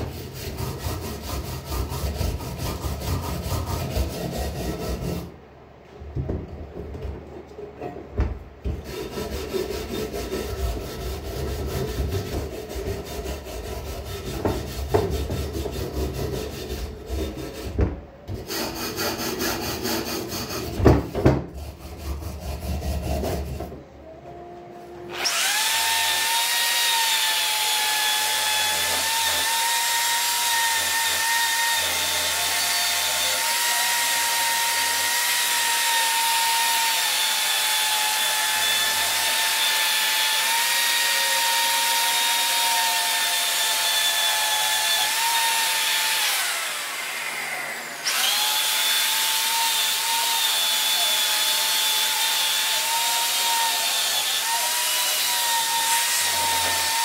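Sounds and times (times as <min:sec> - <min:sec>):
electric drill motor whine: 0:25.1 - 0:57.0.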